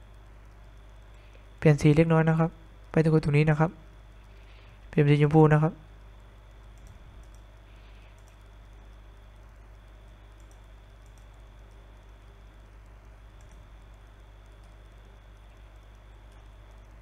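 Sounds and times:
faint high whine: 0.0s - 17.0s
low electrical hum: 0.0s - 17.0s
computer mouse clicks: 6.6s - 9.1s, 10.2s - 17.0s.

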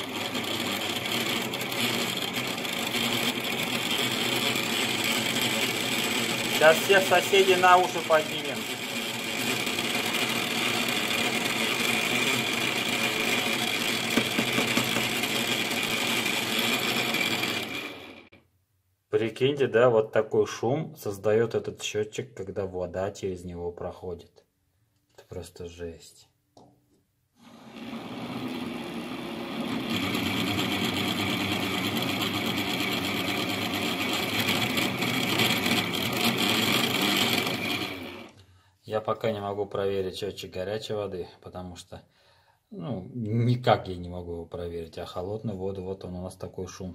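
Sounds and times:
water meter whirring: 0.0s - 18.4s, 27.4s - 38.3s.

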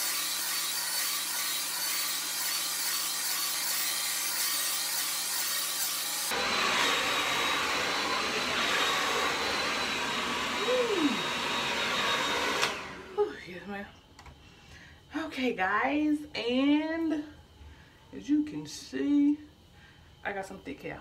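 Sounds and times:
hair dryer blowing: 0.0s - 13.4s.

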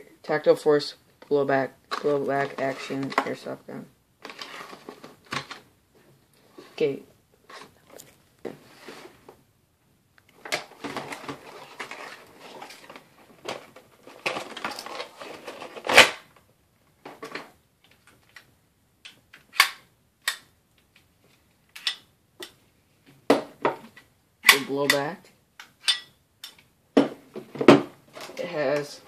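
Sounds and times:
plastic packaging crinkling: 10.7s - 16.4s.

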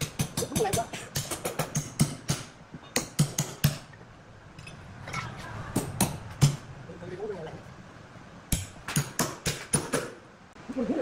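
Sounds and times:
hand hammer striking: 0.0s - 3.9s, 5.7s - 6.7s, 8.5s - 10.2s.

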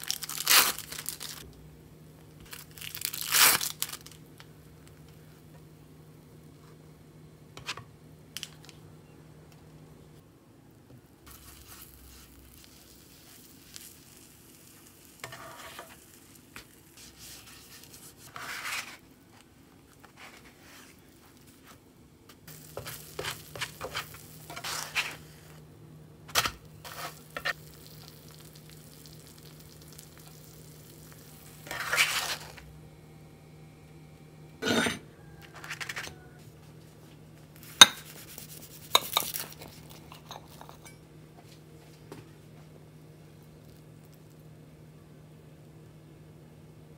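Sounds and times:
butter sizzling: 11.3s - 18.2s, 22.5s - 25.6s, 26.3s - 32.6s
spatula scraping and tapping pan: 15.2s - 16.1s, 22.7s - 25.2s.

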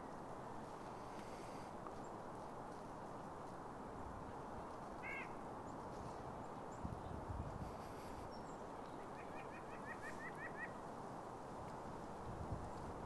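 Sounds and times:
wind noise: 0.0s - 13.0s
nuthatch nasal calls: 5.0s - 5.4s, 9.0s - 10.8s.

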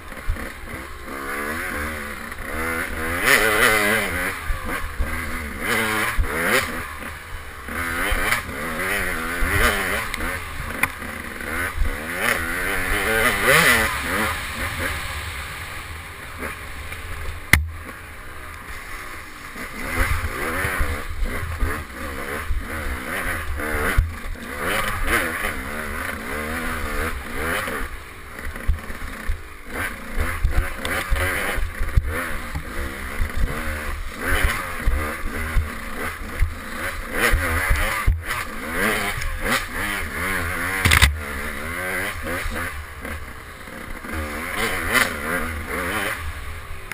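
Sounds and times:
dirt bike engine revving: 0.0s - 46.9s
bike knocking on bumps: 17.0s - 18.0s, 40.8s - 41.3s.

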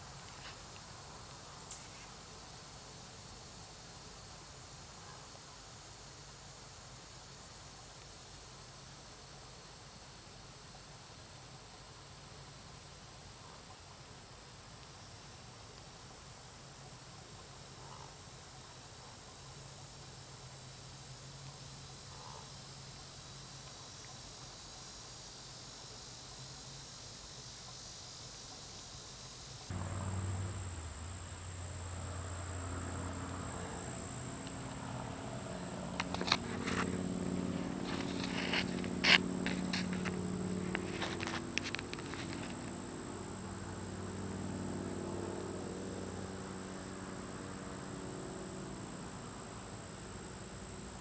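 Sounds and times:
insects chirring: 0.0s - 51.0s
low pitched hum: 29.7s - 46.6s.

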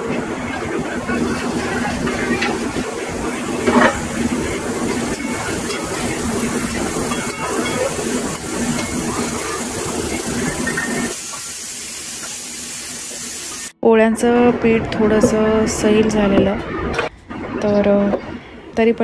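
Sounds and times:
food hissing in a pan: 4.1s - 13.7s.

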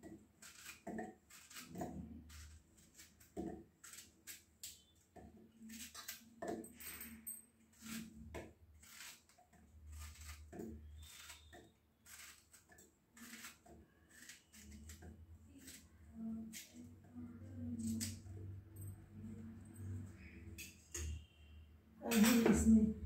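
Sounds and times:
knife cutting banana: 0.3s - 4.9s, 5.6s - 6.7s, 7.7s - 16.9s.

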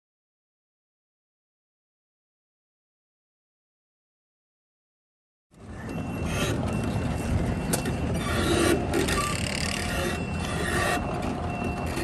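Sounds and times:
diesel engine rumbling: 5.5s - 12.0s.

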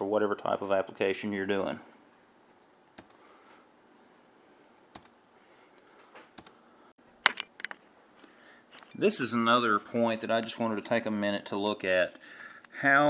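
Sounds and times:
keyboard key clicks: 3.0s - 3.2s.

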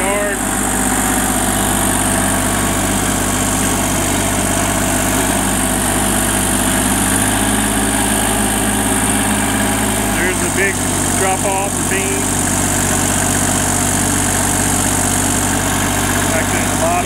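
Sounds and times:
tractor engine running: 0.0s - 17.0s.

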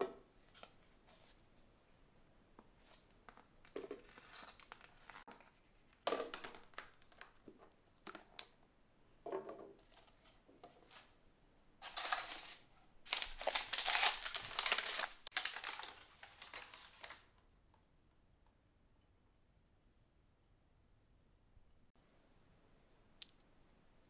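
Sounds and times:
packing paper crinkling: 11.8s - 17.3s
plastic wrapping crinkling: 11.8s - 17.3s.

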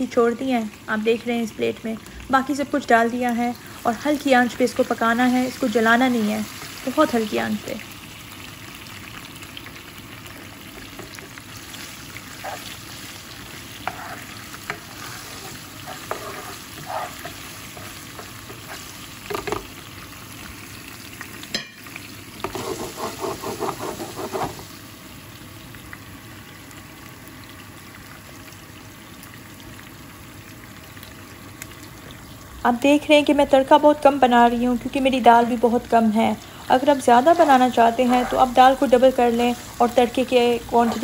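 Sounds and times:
spices sizzling in oil: 0.0s - 41.0s
spoon scraping pan: 10.8s - 19.7s, 22.4s - 24.7s, 37.3s - 41.0s
spoon tapping pan: 19.2s - 19.7s, 21.5s - 22.6s.

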